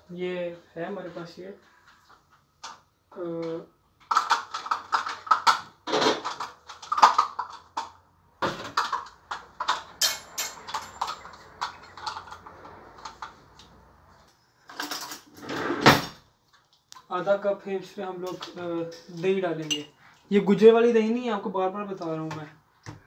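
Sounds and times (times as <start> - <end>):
kitchen items clattering: 4.0 - 13.9, 14.6 - 16.2.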